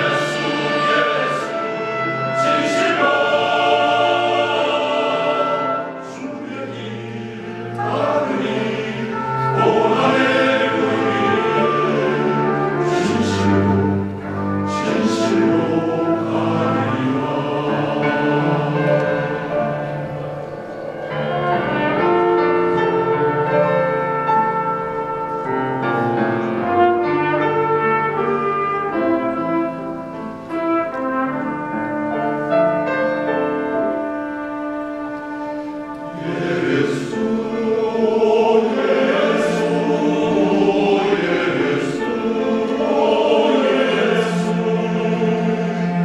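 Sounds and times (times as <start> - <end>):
men's choir singing: 0.0 - 23.5, 36.0 - 46.0
instrumental accompaniment: 0.0 - 46.0.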